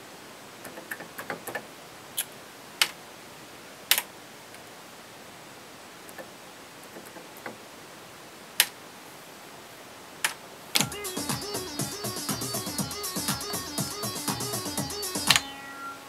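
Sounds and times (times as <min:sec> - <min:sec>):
drum machine hits: 0:10.8 - 0:15.6
synthesizer buttons clicking: 0:10.8 - 0:15.9
synth bassline: 0:10.8 - 0:16.0.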